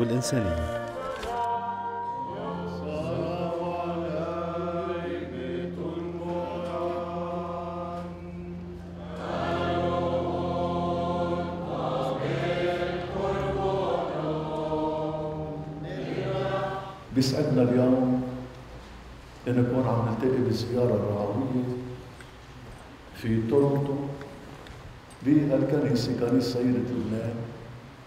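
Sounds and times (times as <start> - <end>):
low held drone tone: 0.0 - 18.4
voices singing a slow hymn: 0.0 - 28.0.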